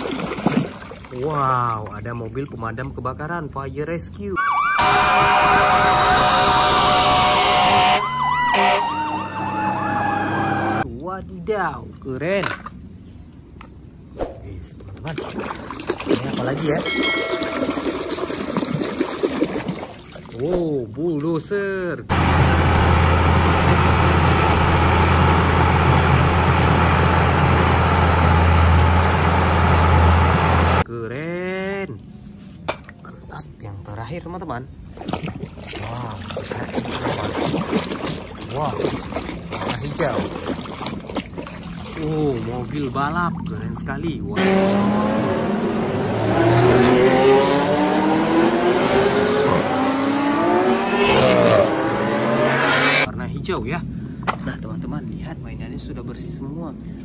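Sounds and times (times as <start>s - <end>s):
bulldozer diesel engine droning: 4.4s - 10.8s, 22.1s - 30.9s
sports car engines accelerating: 22.1s - 30.9s, 44.4s - 53.1s.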